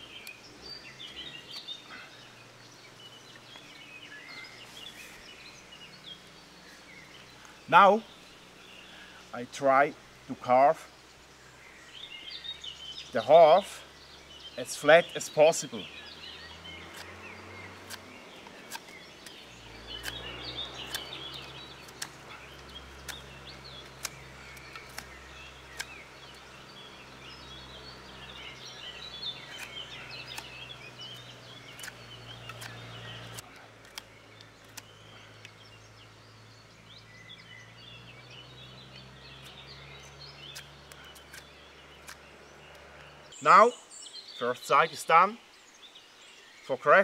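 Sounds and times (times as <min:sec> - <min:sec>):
birds chirping: 0:00.0 - 0:47.0
knife blade cutting wood clicks: 0:17.8 - 0:19.4, 0:29.5 - 0:35.6.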